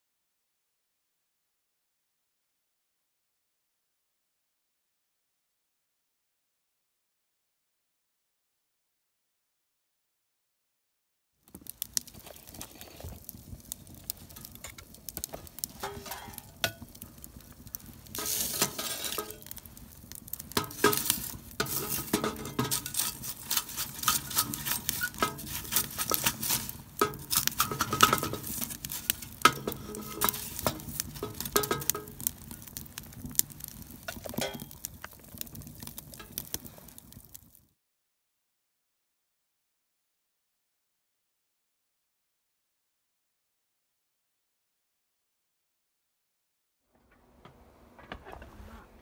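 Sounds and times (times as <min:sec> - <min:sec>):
wood fire crackling and popping: 0:11.5 - 0:37.7
tongs clinking on metal: 0:15.8 - 0:16.9, 0:18.2 - 0:19.5, 0:20.5 - 0:32.3, 0:34.4 - 0:34.8.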